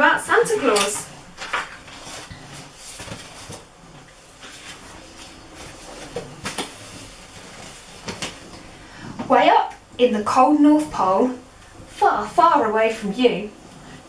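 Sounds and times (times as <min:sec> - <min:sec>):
book pages rustling: 0:00.6 - 0:08.7.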